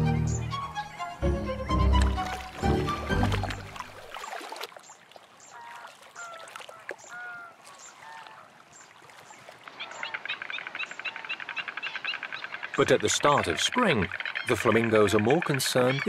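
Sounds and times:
flamingos honking: 0:05.5 - 0:08.6, 0:09.6 - 0:16.0
frogs rattling chorus: 0:09.6 - 0:16.0.

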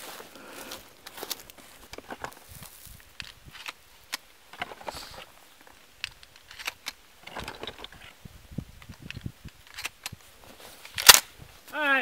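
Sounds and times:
dry leaves rustling underfoot: 0:00.0 - 0:04.0, 0:10.2 - 0:12.0
gun action clicking: 0:06.0 - 0:07.9, 0:10.9 - 0:11.3.

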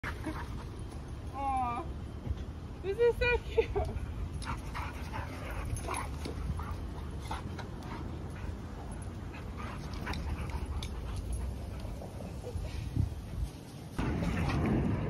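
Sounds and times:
dogs play-wrestling: 0:03.9 - 0:14.9.

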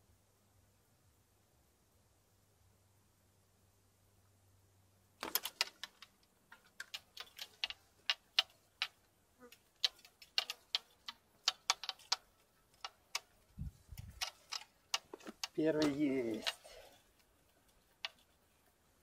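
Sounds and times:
sharp irregular clicks: 0:05.2 - 0:19.0.

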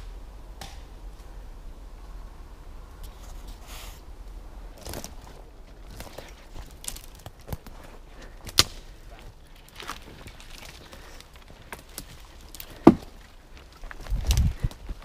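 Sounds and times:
footsteps through dry brush: 0:04.6 - 0:15.0
twigs cracking: 0:04.6 - 0:15.0
axe striking sapling: 0:12.8 - 0:13.1.

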